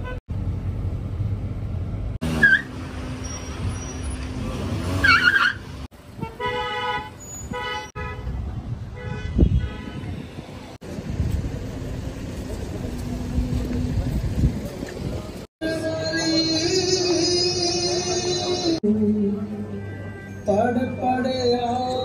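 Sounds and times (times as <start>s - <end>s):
car engine and road noise: 0.0s - 22.0s
car horns honking: 2.2s - 10.5s.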